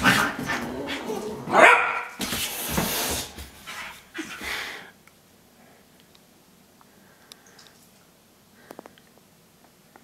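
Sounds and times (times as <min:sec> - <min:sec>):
puppy barking and yipping: 0:01.5 - 0:02.2.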